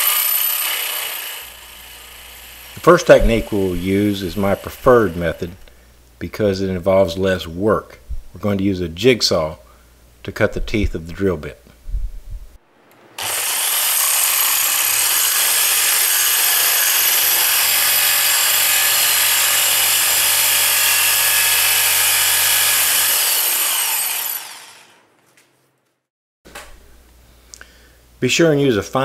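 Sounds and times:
jigsaw cutting metal pipe: 0.0 - 5.7, 13.2 - 25.0.

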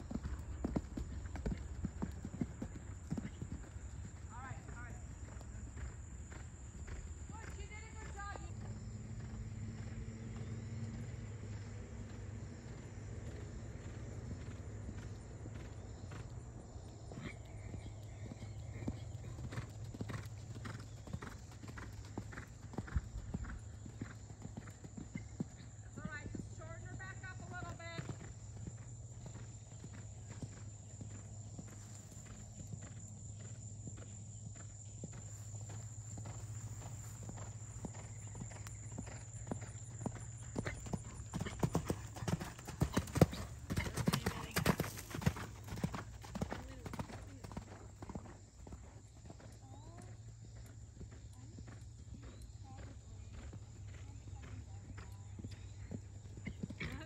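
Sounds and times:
horse hoofbeats on sand: 26.0 - 55.6.

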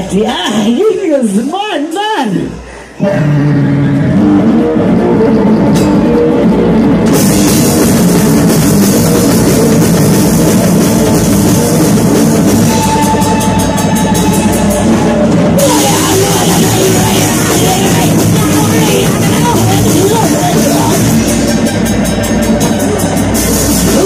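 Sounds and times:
drum kit: 3.1 - 24.0
live rock band playing: 3.7 - 24.0
cymbals: 4.2 - 24.0
held high note: 11.5 - 24.0.

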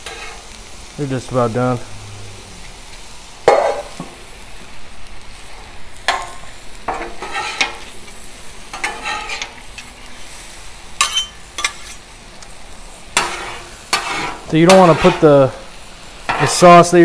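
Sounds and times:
food sizzling on a griddle: 0.0 - 17.0
metal spatulas clanking and scraping: 6.1 - 7.9, 8.7 - 9.9, 11.0 - 12.0, 13.2 - 15.2.

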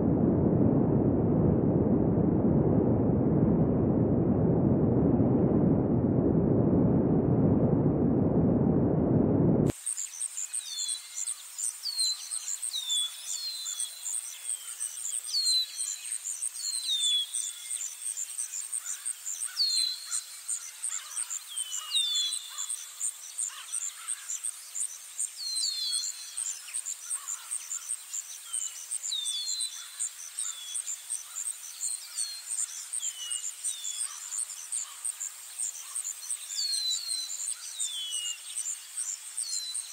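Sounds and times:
loud low rumbling: 0.0 - 9.7
small birds chirping: 9.8 - 39.9.

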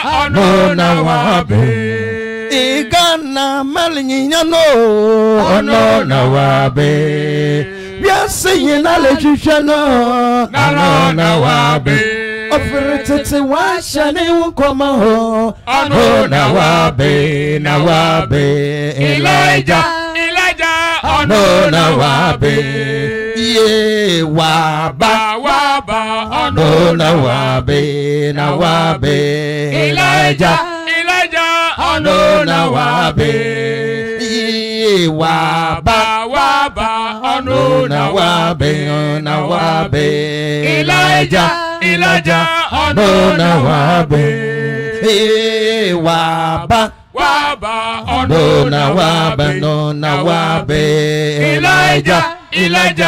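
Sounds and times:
voices singing a chant: 0.0 - 53.0.

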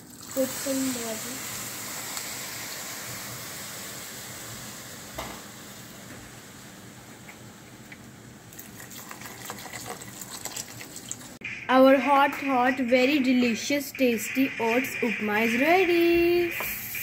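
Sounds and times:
food hissing in hot pot: 0.2 - 6.0
water poured from plastic bottle: 8.6 - 11.4.

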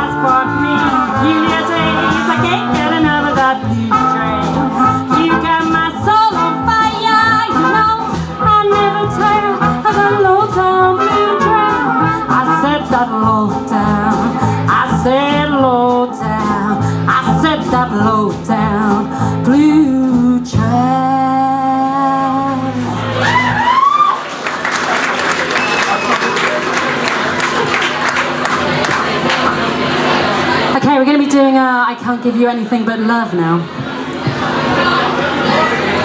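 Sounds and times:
woman singing: 0.0 - 23.0
swing jazz band playing: 0.0 - 36.0.

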